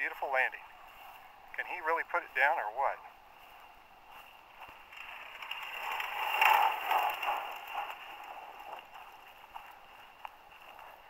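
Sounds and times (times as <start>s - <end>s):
wind noise on microphone: 3.4s - 11.0s.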